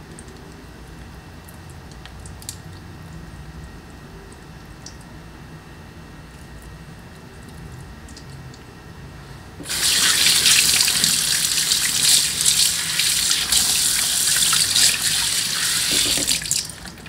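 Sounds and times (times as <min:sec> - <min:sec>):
tap water splashing into sink: 0:09.6 - 0:17.0.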